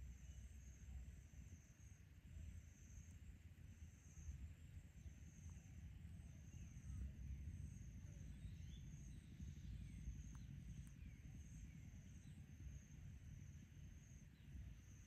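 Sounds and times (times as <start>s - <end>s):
faint bird chirps: 5.2s - 15.0s.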